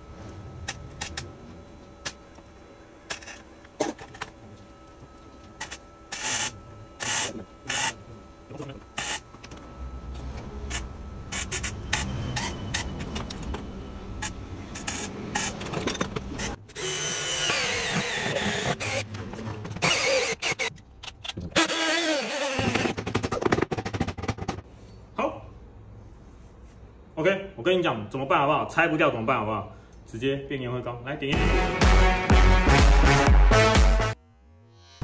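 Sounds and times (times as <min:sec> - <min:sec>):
power drill with hole saw whining: 0:06.1 - 0:08.0, 0:09.0 - 0:09.2, 0:16.4 - 0:19.1, 0:19.8 - 0:20.7, 0:21.6 - 0:22.9.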